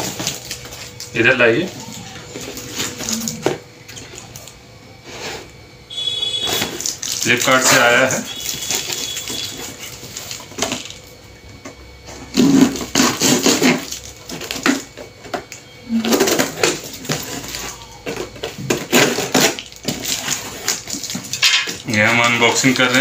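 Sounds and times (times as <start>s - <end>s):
knife cutting packing tape: 6.0s - 11.0s, 12.3s - 14.9s, 16.0s - 23.0s
cardboard rustling: 16.0s - 23.0s.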